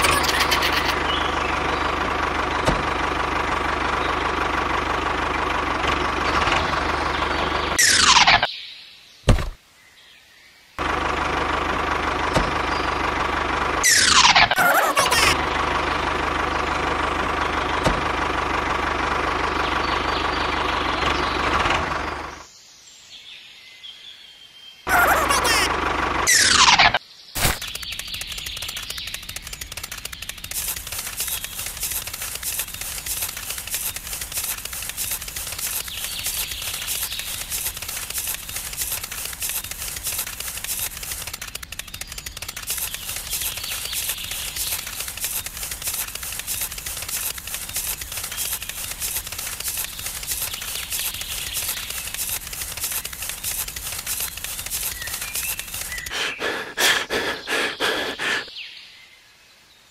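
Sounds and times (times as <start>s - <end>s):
rapid even clicking: 26.3s - 58.5s.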